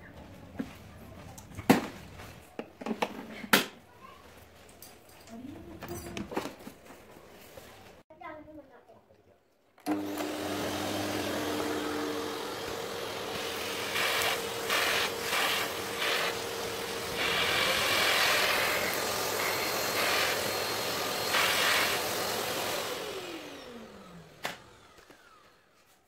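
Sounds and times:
vacuum cleaner sucking grit: 0:09.8 - 0:25.4
motor winding down whine: 0:09.8 - 0:25.6.

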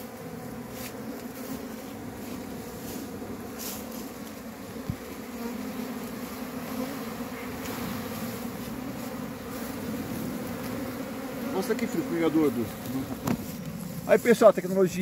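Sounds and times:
honeybees buzzing: 0:00.0 - 0:15.0
brief thump: 0:13.1 - 0:13.5.

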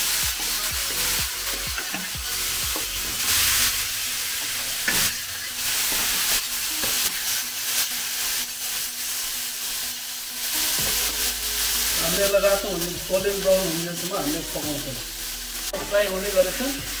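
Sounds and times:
meat sizzling in oil: 0:00.0 - 0:17.0
spatula scraping a wok: 0:00.1 - 0:09.3.

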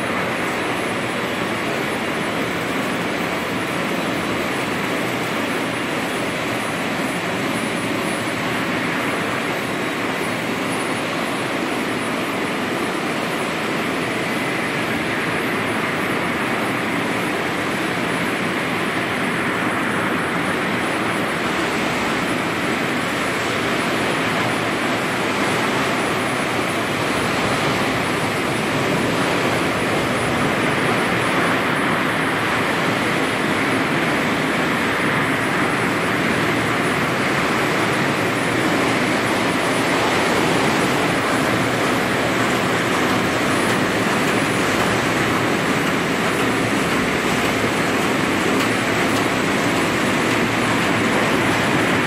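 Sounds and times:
production line machinery humming: 0:00.0 - 0:52.0.

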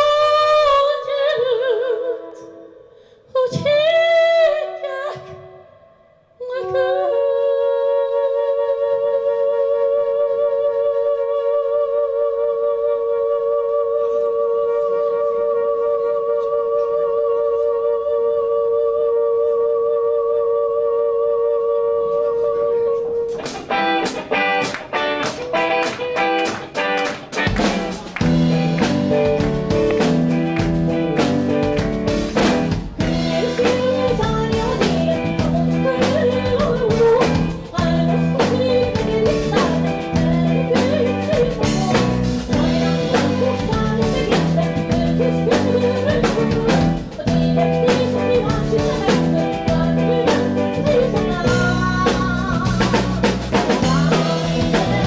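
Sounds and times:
woman singing lead vocal: 0:00.0 - 0:24.6, 0:28.2 - 0:55.0
electric guitar: 0:23.0 - 0:55.0
drums: 0:23.2 - 0:55.0
bass notes: 0:27.5 - 0:55.0.

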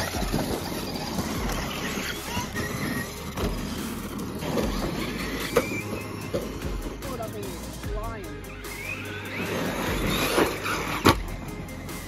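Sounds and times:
rc truck motor whining: 0:00.0 - 0:07.7, 0:08.3 - 0:12.0.

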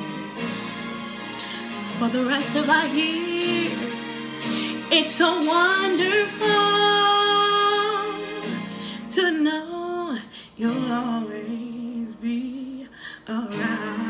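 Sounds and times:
instrumental backing music: 0:00.0 - 0:09.7, 0:13.3 - 0:14.0
woman singing soulful ballad: 0:01.4 - 0:14.0.

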